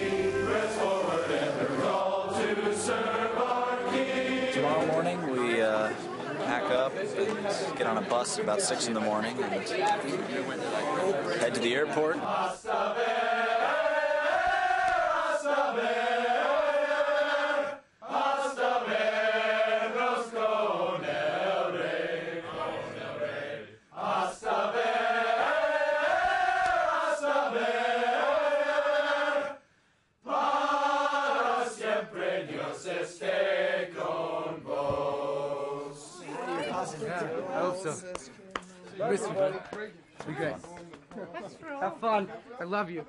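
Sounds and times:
men singing a hymn: 0:00.0 - 0:05.6, 0:11.4 - 0:29.6, 0:30.2 - 0:38.0.

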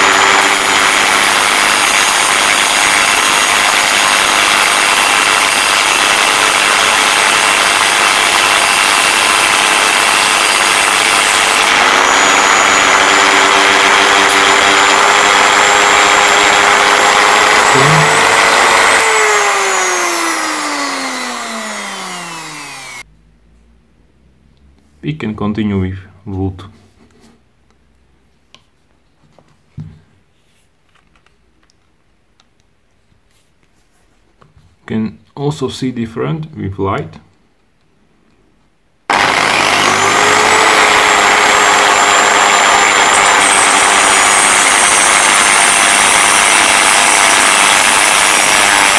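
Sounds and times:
cut-off disc grinding metal: 0:00.0 - 0:23.0, 0:39.1 - 0:48.9
rotary tool motor whine: 0:00.0 - 0:23.0, 0:39.1 - 0:48.9.

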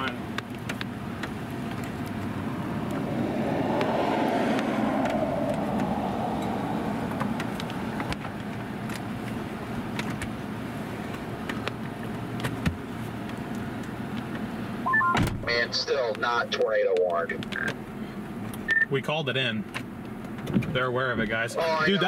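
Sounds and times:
vehicle passing by: 0:02.2 - 0:08.7.

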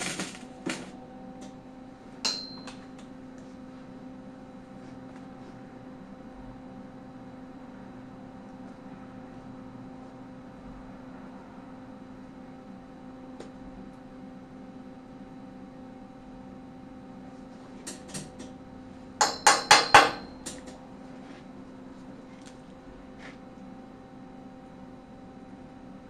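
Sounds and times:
hammer striking steel tubing: 0:02.2 - 0:02.8, 0:19.2 - 0:20.6.

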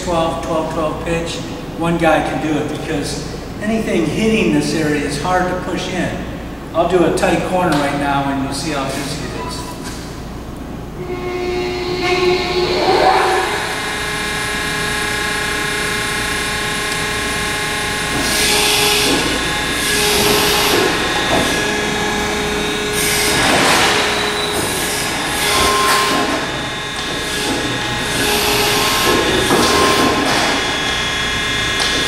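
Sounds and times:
machine hum: 0:00.0 - 0:32.0
machine drive noise: 0:08.9 - 0:32.0.

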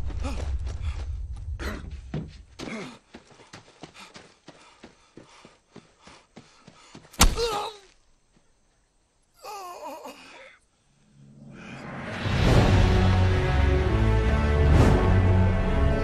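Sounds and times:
quick footsteps on dry ground: 0:00.0 - 0:08.8.

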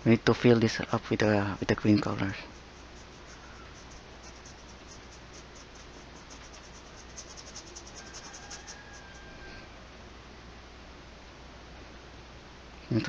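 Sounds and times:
steady low hum: 0:00.0 - 0:13.0
brush scrubbing paint: 0:01.6 - 0:09.3.

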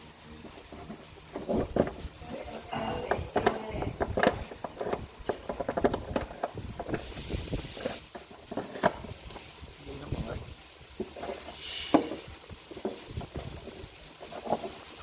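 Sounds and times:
short hiss: 0:06.9 - 0:08.1, 0:08.9 - 0:13.2.

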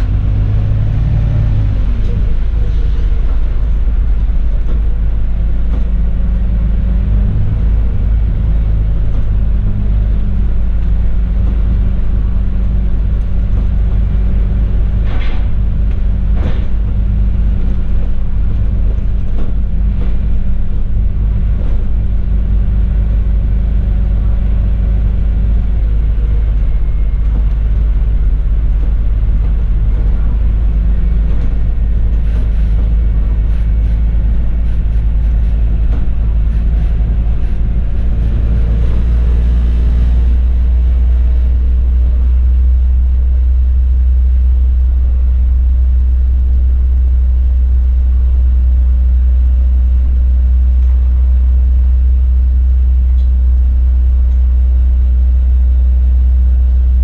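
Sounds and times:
bus engine and road rumble: 0:00.0 - 0:57.0.

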